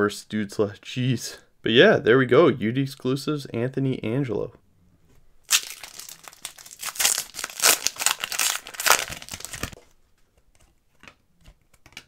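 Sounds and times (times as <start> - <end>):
foil wrapper tearing and crinkling: 5.5 - 9.8.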